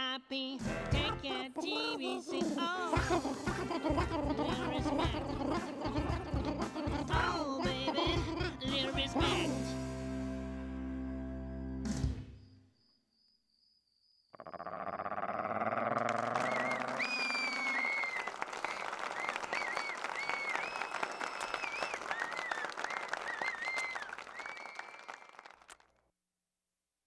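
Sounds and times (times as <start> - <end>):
applause: 3.5 - 8.4, 15.8 - 26.0.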